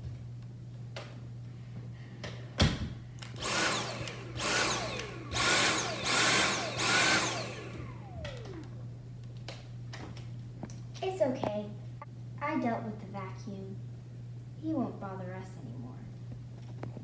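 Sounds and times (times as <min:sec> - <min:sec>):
vacuum cleaner motor bursts: 0:03.4 - 0:08.8.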